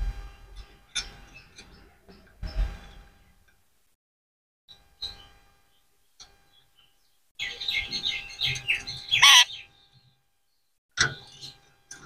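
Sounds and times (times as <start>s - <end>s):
parakeet chirping: 8.7s - 9.6s
parakeet harsh screech: 9.2s - 9.5s.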